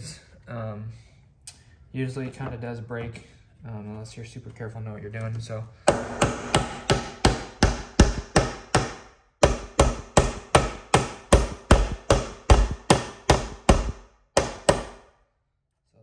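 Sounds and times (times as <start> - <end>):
hammer driving nails into wood: 5.9 - 15.2.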